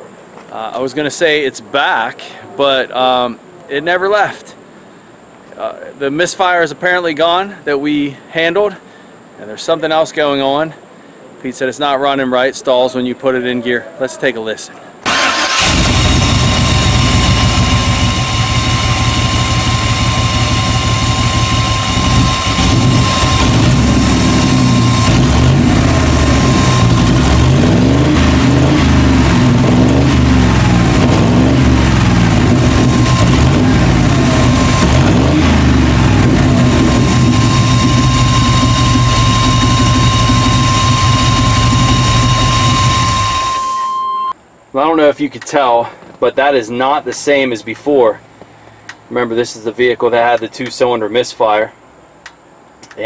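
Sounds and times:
van engine running poorly: 0:15.1 - 0:43.9.

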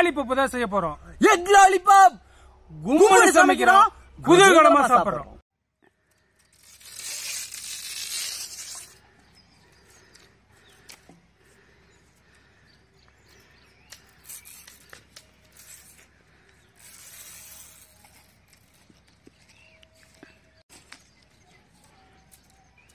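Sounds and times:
leaf tearing: 0:06.2 - 0:09.2, 0:13.9 - 0:19.2.

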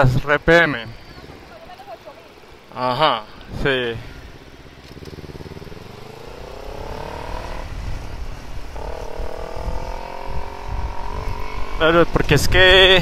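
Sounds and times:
motorcycle engine accelerating: 0:03.7 - 0:12.8
wind rumble on microphone: 0:06.8 - 0:13.0.

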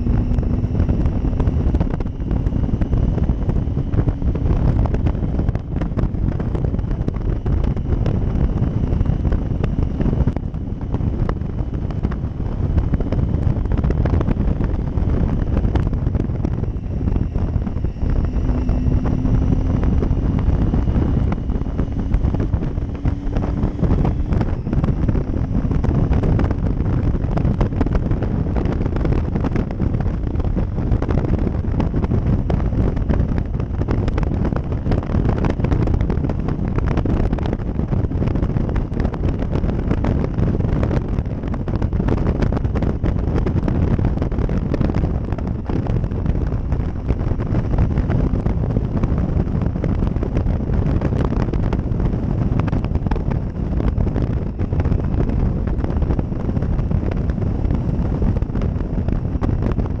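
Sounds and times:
motorcycle engine: 0:00.0 - 1:00.0
wind buffeting on microphone: 0:00.0 - 1:00.0.

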